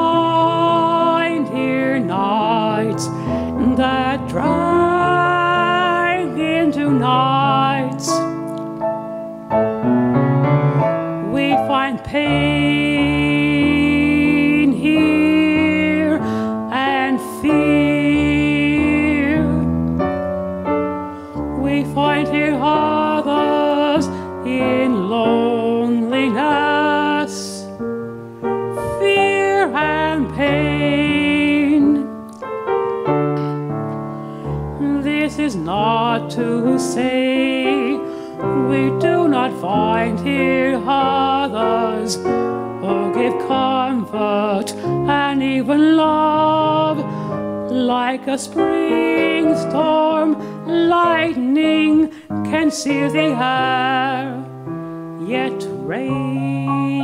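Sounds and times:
grand piano chords: 0:00.0 - 0:57.0.

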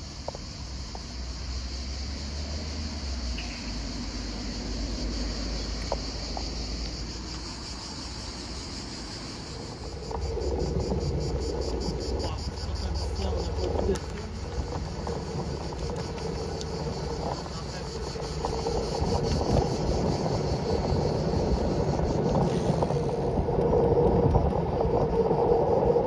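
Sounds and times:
cicadas buzzing: 0:00.0 - 0:26.0
wind rumble on microphone: 0:00.0 - 0:26.0.

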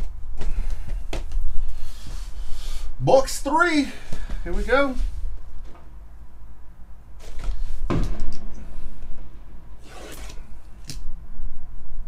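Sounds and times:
cardboard scraping and rustling: 0:07.2 - 0:08.0, 0:09.8 - 0:10.5.

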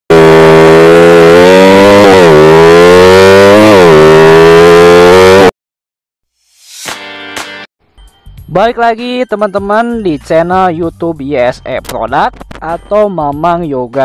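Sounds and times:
motorcycle engine accelerating: 0:00.1 - 0:05.5.

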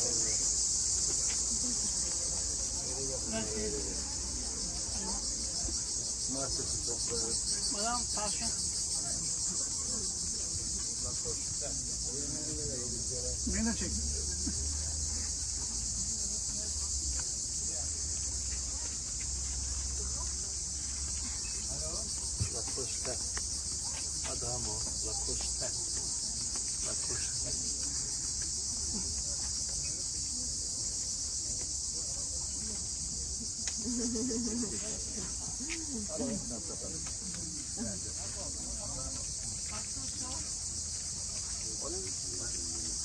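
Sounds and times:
insect chorus shrilling: 0:00.0 - 0:16.9, 0:17.5 - 0:36.9
faint voices of people: 0:00.0 - 0:43.0
people talking indistinctly: 0:00.0 - 0:43.0.

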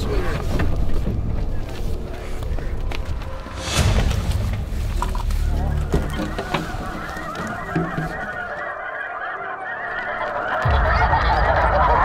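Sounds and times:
geese honking: 0:04.9 - 0:12.0.

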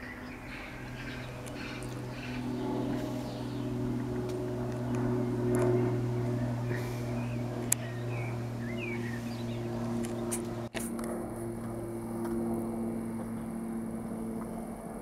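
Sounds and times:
bird chirps: 0:00.0 - 0:03.8, 0:05.6 - 0:10.3
propeller plane droning: 0:00.0 - 0:15.0.

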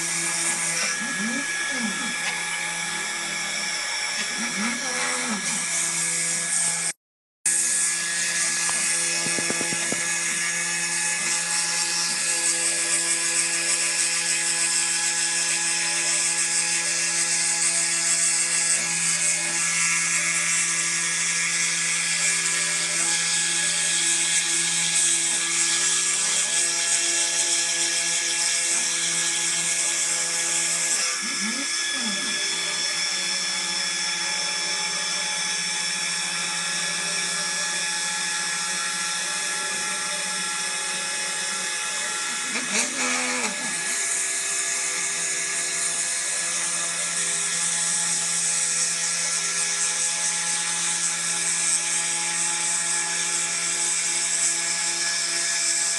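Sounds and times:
engraver spindle whining: 0:00.0 - 0:07.0, 0:07.6 - 0:14.0, 0:28.4 - 0:48.7.

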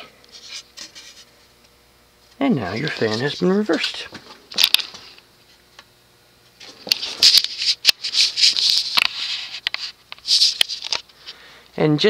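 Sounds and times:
handling rustling and scraping: 0:00.3 - 0:01.6, 0:02.5 - 0:05.7, 0:06.6 - 0:11.4.

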